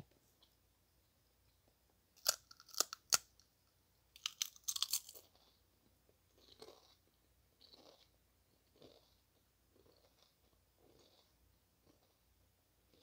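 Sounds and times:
potato chip crunching: 2.2 - 3.3, 4.2 - 5.2
soft chewing: 4.2 - 12.3.

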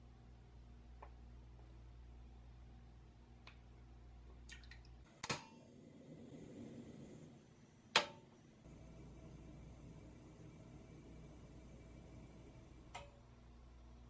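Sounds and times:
burner flame hissing: 5.1 - 14.0
gas stove metallic clicks: 5.2 - 5.6, 7.9 - 8.3, 12.9 - 13.2.

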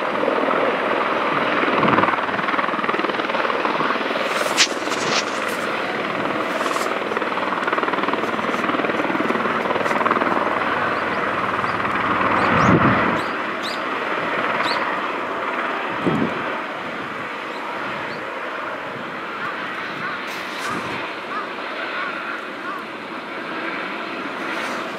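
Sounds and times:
helicopter rotor and turbine rush: 0.0 - 24.9.

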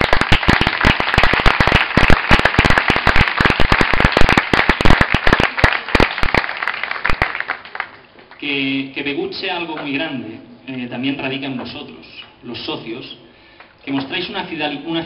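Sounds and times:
crowd clapping: 0.0 - 8.4.

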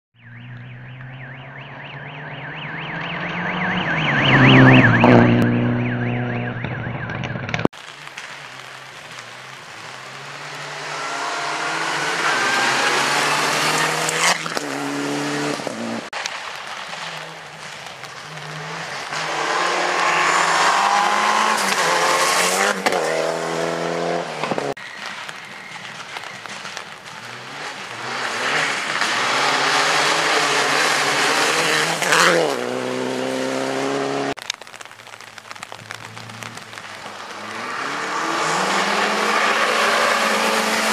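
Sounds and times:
rally car engines revving: 0.4 - 16.1, 17.0 - 24.8, 25.9 - 34.8, 35.5 - 40.9
sharp crack: 6.5 - 23.6, 24.3 - 32.6, 34.3 - 40.9.

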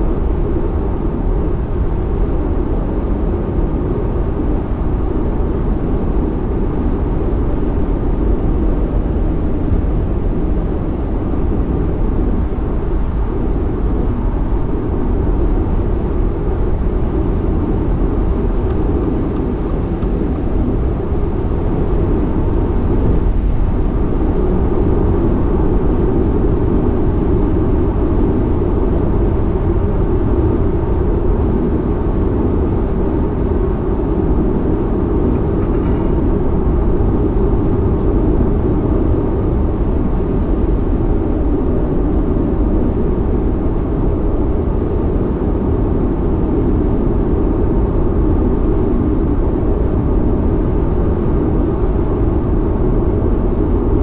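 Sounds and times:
car road and tyre rumble: 0.0 - 54.0.

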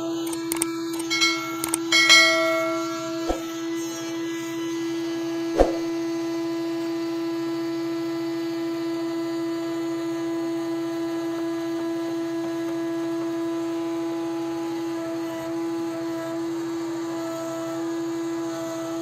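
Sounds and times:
band sawmill humming: 0.0 - 4.5
sharp knock: 1.4 - 3.5, 5.6 - 5.9.

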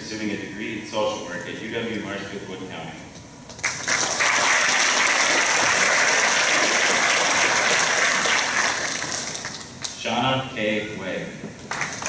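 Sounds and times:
crowd applauding: 3.6 - 9.7, 11.7 - 12.0.

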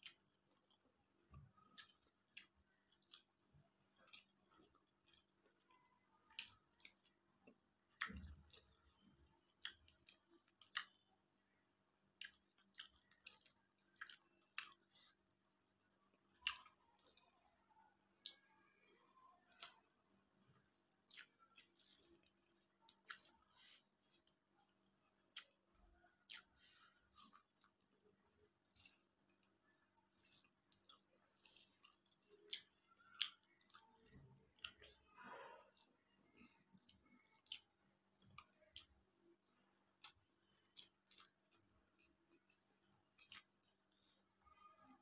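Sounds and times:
person chewing: 0.0 - 11.0, 12.1 - 17.6, 20.8 - 44.6
fingers squishing rice on plate: 21.0 - 24.4
wet mouth clicks and smacks: 28.7 - 29.0, 30.1 - 34.9, 40.0 - 42.1.

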